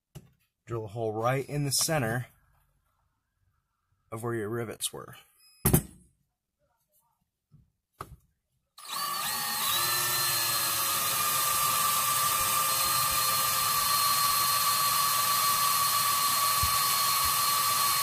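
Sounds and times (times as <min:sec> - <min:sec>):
power drill whining: 0:08.8 - 0:18.0.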